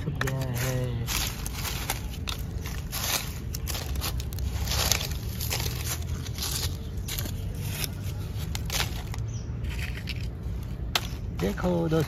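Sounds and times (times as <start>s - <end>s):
dry leaves rustling and crackling: 0.0s - 12.0s.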